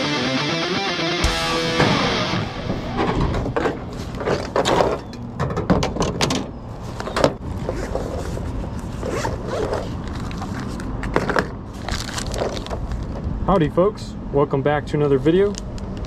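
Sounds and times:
low rumble: 1.3 - 3.7
zipper rasping open: 8.9 - 10.6.

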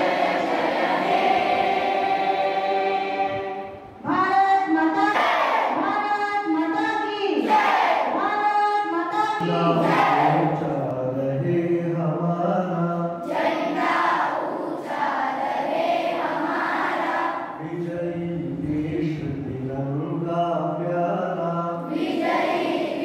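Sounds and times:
children and adults singing: 0.0 - 3.8, 9.2 - 10.8, 13.2 - 17.6, 21.8 - 23.0.

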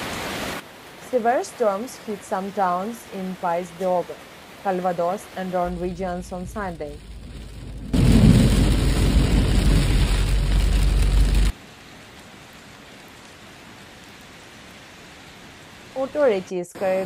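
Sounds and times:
faint steady hiss: 0.0 - 7.8
heavy rain pounding on car: 5.6 - 11.9.

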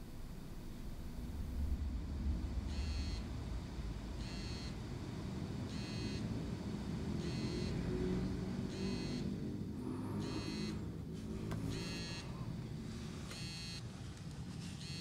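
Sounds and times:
low steady rumble: 0.0 - 14.8
electronic warning beeps: 2.6 - 3.3, 4.2 - 4.8, 5.7 - 6.4, 7.1 - 8.1, 8.7 - 9.4, 10.2 - 11.0, 11.6 - 12.5, 13.3 - 13.8, 14.8 - 15.0.

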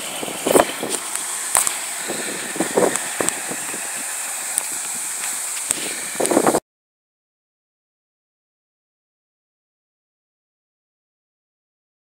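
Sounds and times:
steady street hiss: 0.0 - 6.6.

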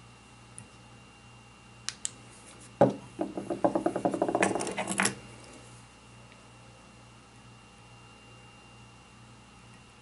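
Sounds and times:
loud knock: 2.8 - 4.4.

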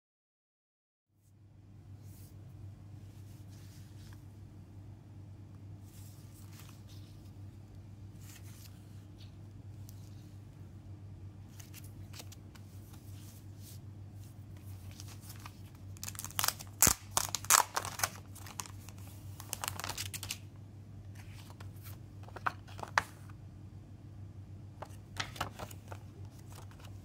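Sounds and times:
faint low hum: 1.1 - 27.0
paper and cardboard rustling: 11.5 - 20.4, 21.2 - 23.3, 24.8 - 27.0.

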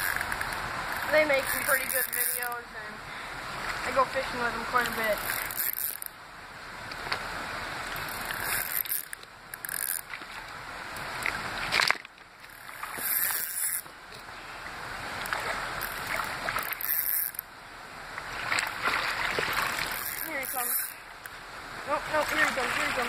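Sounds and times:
fishing reel mechanism running: 0.0 - 2.6, 4.8 - 6.1, 8.0 - 10.1, 12.5 - 13.9, 15.8 - 17.5, 19.5 - 21.0.

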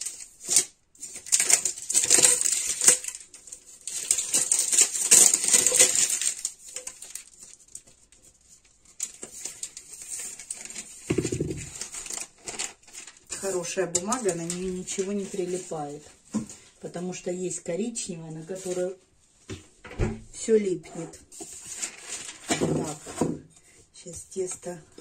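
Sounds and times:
parchment paper crinkling: 0.0 - 16.8, 18.5 - 19.0, 21.2 - 23.3.

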